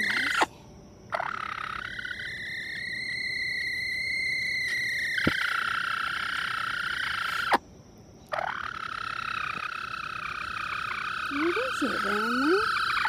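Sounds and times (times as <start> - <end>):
hen alarm call: 0.0 - 0.5, 8.4 - 13.0.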